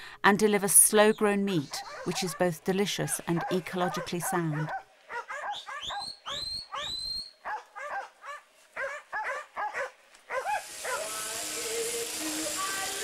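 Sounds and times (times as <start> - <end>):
dog barking: 1.8 - 11.1.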